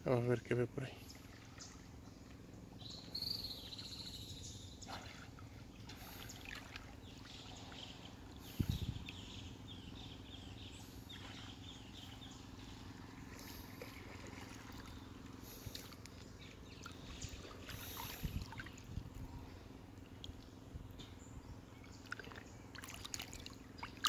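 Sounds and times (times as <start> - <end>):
small bird chirps: 2.8 - 5.0.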